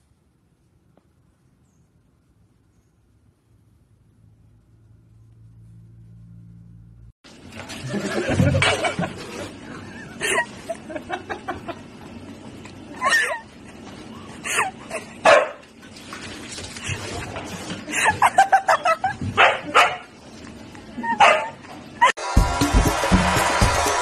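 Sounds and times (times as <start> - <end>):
dogs barking and yipping: 15.2 - 15.6, 18.0 - 20.1, 21.0 - 22.1
music: 22.2 - 24.0.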